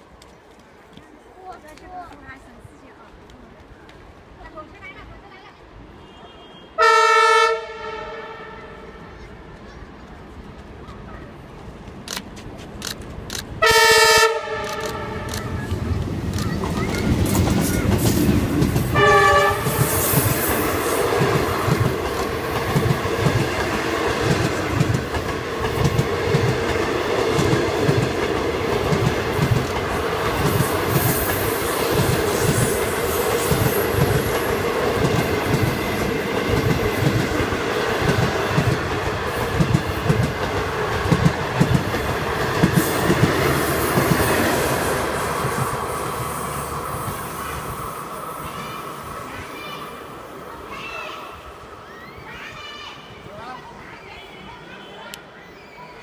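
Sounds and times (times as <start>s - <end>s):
train horn blast: 6.0s - 9.1s, 13.6s - 15.3s, 18.9s - 20.0s
train coaches rolling: 7.9s - 56.0s.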